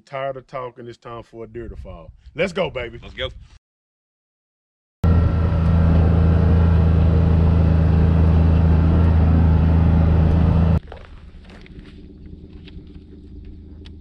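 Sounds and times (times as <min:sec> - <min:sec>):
road and wind noise: 0:05.0 - 0:14.0
utility vehicle engine droning: 0:05.0 - 0:14.0.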